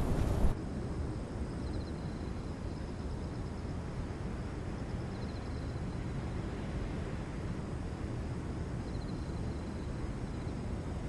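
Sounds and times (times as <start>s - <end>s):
low outdoor rumble: 0.0s - 0.6s.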